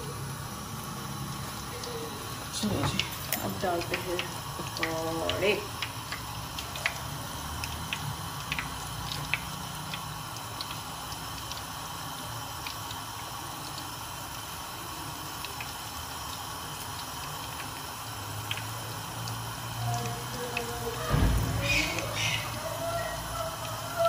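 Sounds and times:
batter deep-frying in oil: 0.0s - 24.0s
small pops and crackles: 7.6s - 11.7s.

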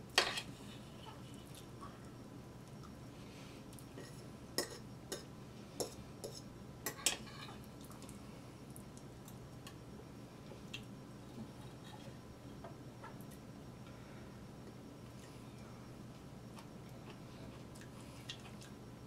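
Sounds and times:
cutlery scraping a plate: 0.2s - 1.2s, 4.0s - 7.6s.

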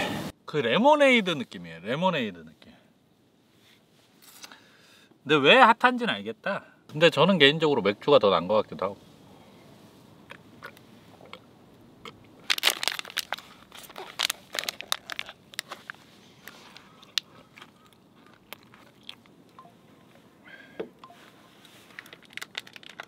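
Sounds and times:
crunching and crackling clicks: 12.0s - 19.6s, 21.9s - 23.0s.

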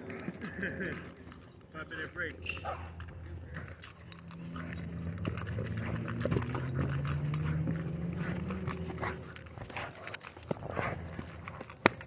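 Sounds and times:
collar tags jingling: 0.0s - 12.0s
thuds of paws and rope on dirt: 2.4s - 12.0s.

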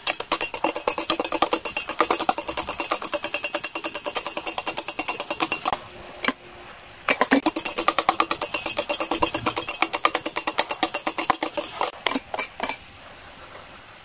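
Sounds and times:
utensil beating mixture in a bowl: 0.0s - 6.4s, 7.1s - 12.9s.

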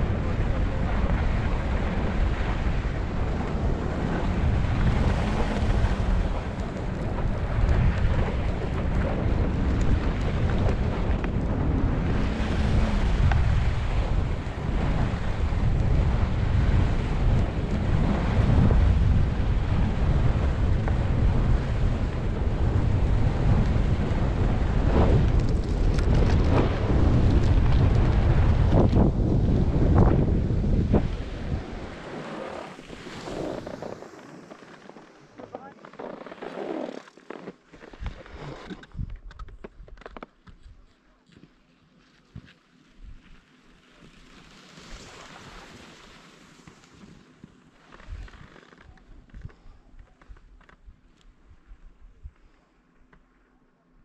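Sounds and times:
wind buffeting microphone: 0.0s - 35.3s.

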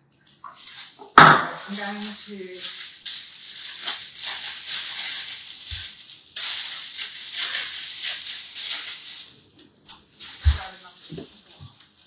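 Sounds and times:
plastic bag crinkling: 0.4s - 12.0s.

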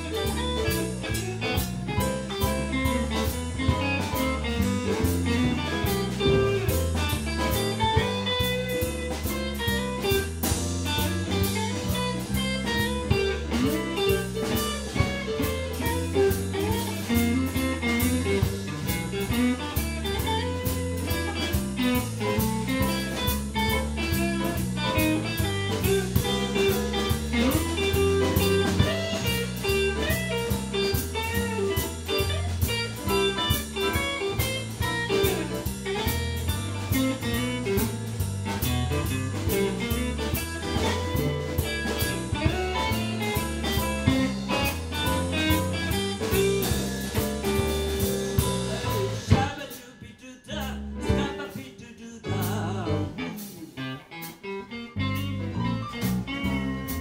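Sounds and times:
blues band playing: 0.0s - 57.0s.

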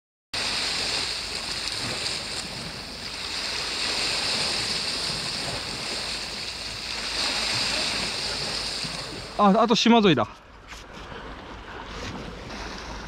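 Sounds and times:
waves washing against rocky shore: 0.4s - 10.3s.

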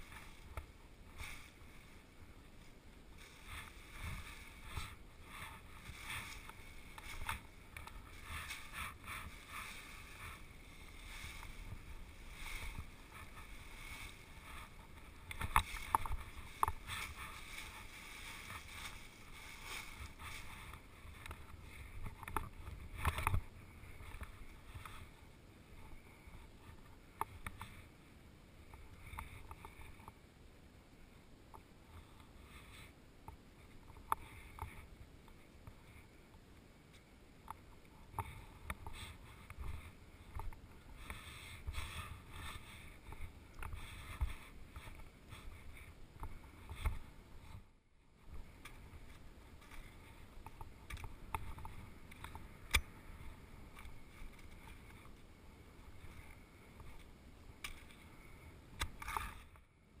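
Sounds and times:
skis scraping over icy snow: 3.2s - 21.1s.

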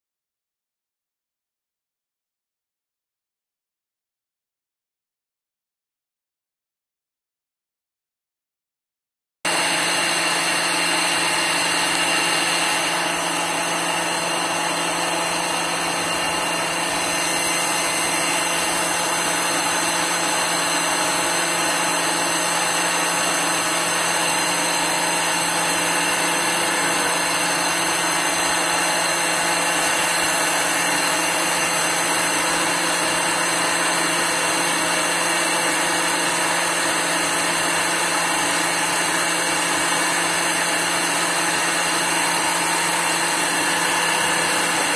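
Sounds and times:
lathe machining metal: 9.5s - 44.9s.

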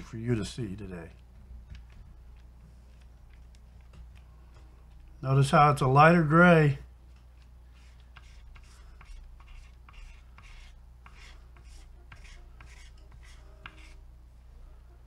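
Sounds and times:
paintbrush scrubbing on canvas: 7.7s - 14.0s.

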